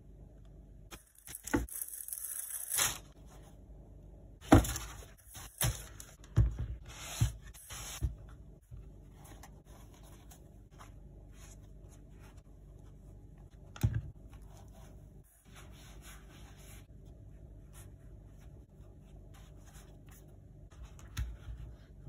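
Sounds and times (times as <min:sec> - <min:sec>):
cardboard and paper rustling: 0:01.0 - 0:03.1, 0:04.4 - 0:08.2.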